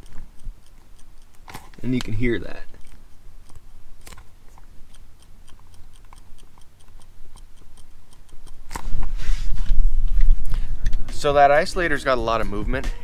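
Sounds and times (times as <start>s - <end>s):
shifter rubber isolator clicking: 0.0s - 9.0s.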